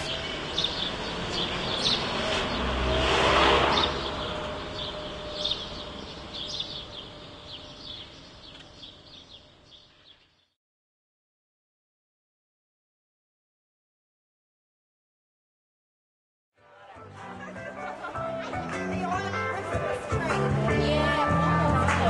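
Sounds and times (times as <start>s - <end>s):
vehicle passing by: 0.0s - 7.8s
birds chirping: 0.0s - 10.6s.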